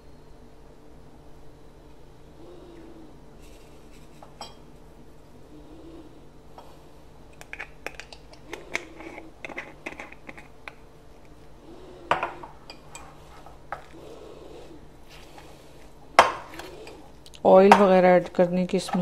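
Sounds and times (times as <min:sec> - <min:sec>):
glass clinking against glass bowl: 0:04.4 - 0:04.6.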